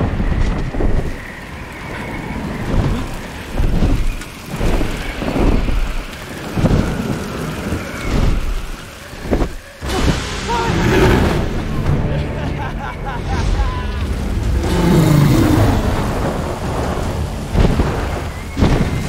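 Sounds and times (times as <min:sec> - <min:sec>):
deep rolling thunder: 0:00.0 - 0:19.0
heavy driving rain: 0:00.0 - 0:19.0.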